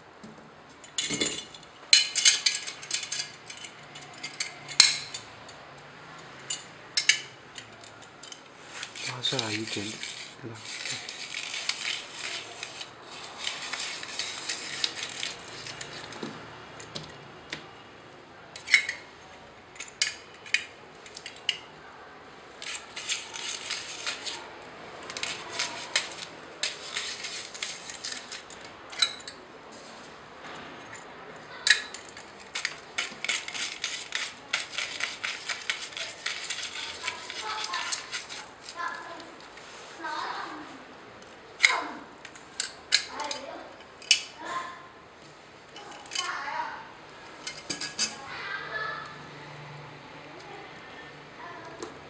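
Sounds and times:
rotary grater clicking and rasping: 8.8 - 16.2, 25.0 - 28.7, 32.2 - 39.1.

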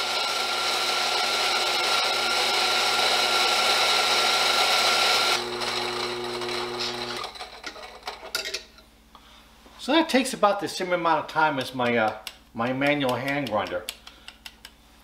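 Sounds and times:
coffee grinder whirring: 0.0 - 8.2.

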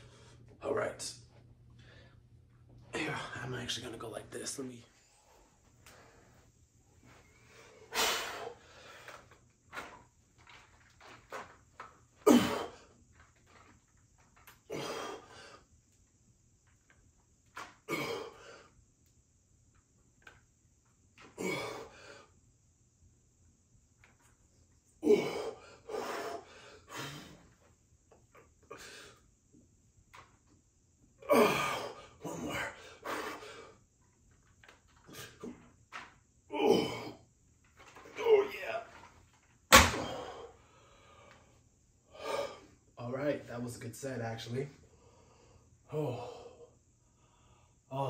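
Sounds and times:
man breathing hard: 7.2 - 9.4, 40.0 - 42.8, 44.9 - 47.9
man exhaling sharply: 7.9 - 8.9
man grunting with effort: 12.2 - 12.8, 21.4 - 21.9, 25.0 - 26.2, 31.2 - 32.9, 36.5 - 37.2, 45.9 - 46.5.

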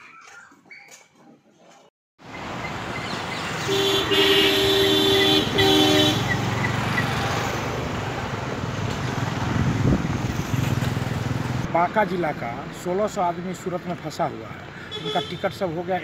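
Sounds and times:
street traffic noise: 1.2 - 16.0
vehicle horn honking: 3.6 - 6.4, 14.9 - 15.5.

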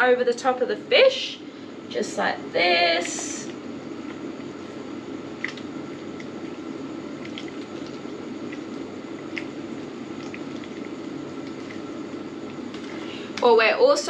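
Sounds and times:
sauce dripping: 3.6 - 13.0
water simmering and bubbling: 3.6 - 13.1.

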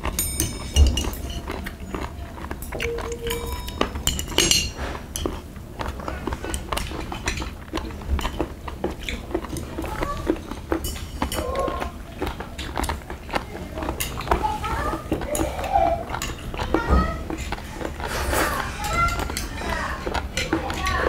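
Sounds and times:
utensils clinking on brass bowls: 0.0 - 5.4, 10.8 - 11.4.

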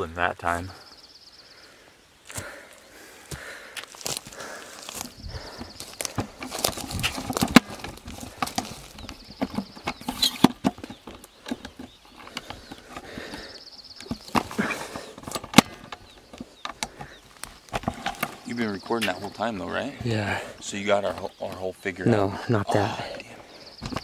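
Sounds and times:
footsteps: 2.3 - 9.7
rustling in dry branches: 2.4 - 18.7.

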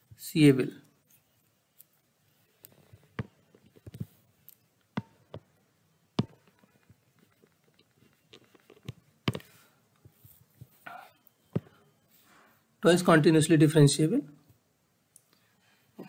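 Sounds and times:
stylus tapping on tablet screen: 5.0 - 5.5, 6.2 - 7.6, 8.4 - 9.6.

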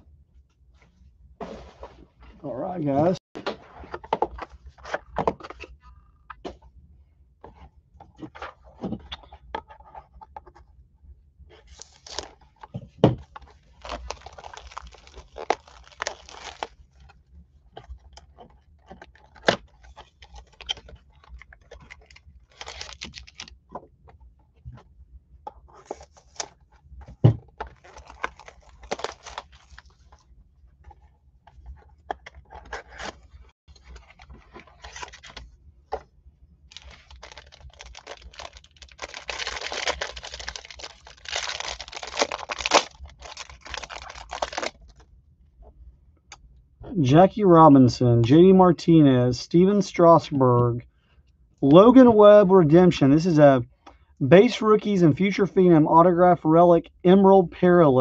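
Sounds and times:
foil pack crinkling and tearing: 13.6 - 17.1, 19.1 - 23.5, 27.7 - 30.0, 36.7 - 45.0.

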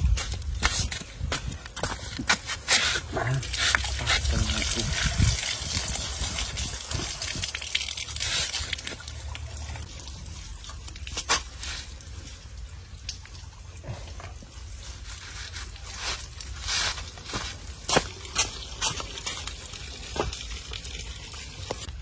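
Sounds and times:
water splashing and dripping: 0.0 - 22.0
rubbing wet snake skins: 2.3 - 12.5, 13.8 - 21.0.

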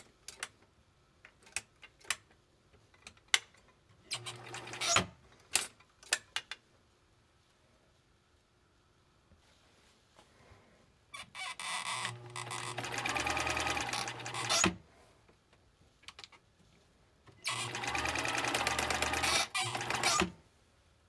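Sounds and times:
sewing machine stitching rattle: 4.1 - 5.1, 12.0 - 14.8, 17.4 - 20.4.

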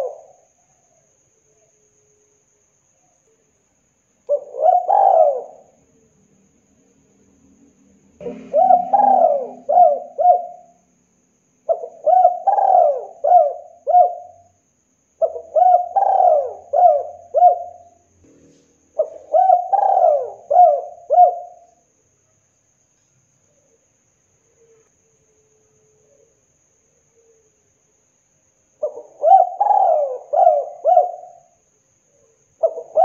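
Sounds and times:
dove cooing: 0.0 - 0.4, 4.3 - 5.8, 8.2 - 10.8, 11.7 - 14.5, 15.2 - 18.0, 18.9 - 21.8, 28.8 - 31.6, 32.6 - 33.0.

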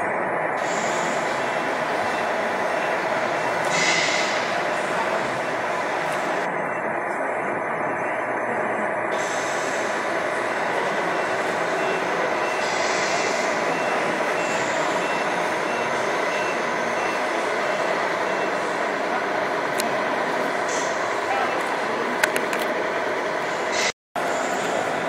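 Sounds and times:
short high reversing beeps: 9.2 - 19.1.

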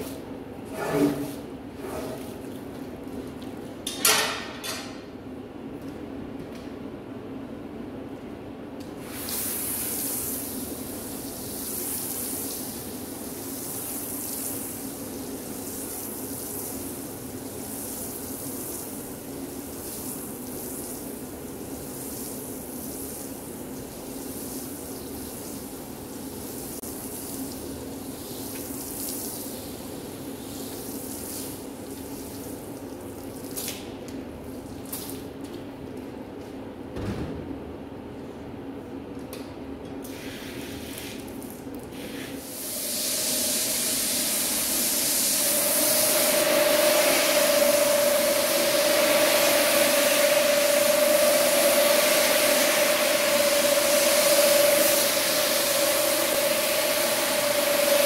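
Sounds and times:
cleaning solution splashing onto carpet: 9.0 - 29.8, 30.4 - 33.8.

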